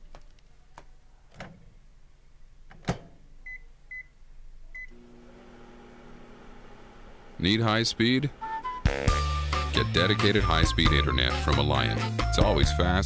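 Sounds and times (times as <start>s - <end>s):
microwave oven humming: 4.8s - 9.7s.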